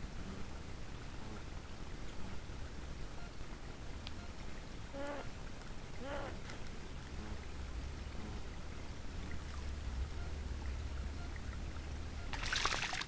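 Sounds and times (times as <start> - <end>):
steady low rumble: 0.0 - 12.9
pond water lapping and trickling: 0.0 - 13.0
faint ticks: 3.2 - 12.4.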